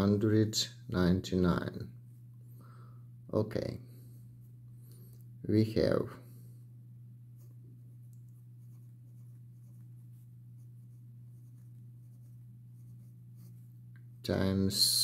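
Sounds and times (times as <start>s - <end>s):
steady low hum: 0.0s - 15.0s
pen scratching on paper: 8.6s - 13.7s.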